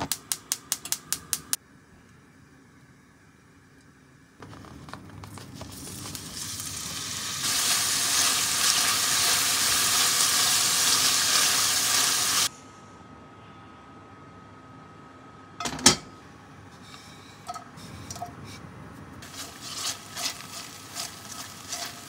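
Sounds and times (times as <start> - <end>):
meat sizzling in hot oil: 5.7 - 12.5, 19.2 - 22.0.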